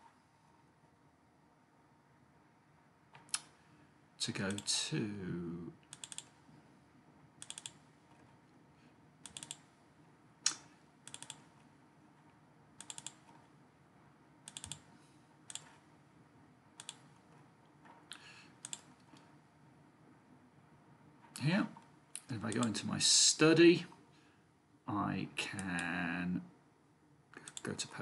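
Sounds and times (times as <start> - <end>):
computer mouse clicking: 4.5 - 4.7, 5.8 - 6.4, 7.4 - 8.2, 9.2 - 9.7, 10.5 - 11.7, 12.8 - 13.4, 14.4 - 14.9, 15.5 - 15.8, 16.8 - 17.1, 18.1 - 19.3, 27.4 - 27.8.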